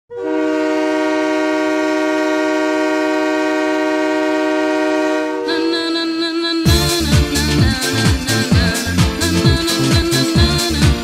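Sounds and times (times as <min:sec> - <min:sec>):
multi-tone goal horn blast: 0:00.1 - 0:05.9.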